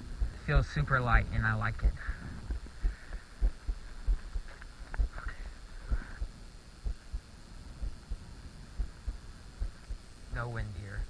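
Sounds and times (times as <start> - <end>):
faint hiss: 0.0 - 11.0
thumps on microphone: 1.8 - 7.2.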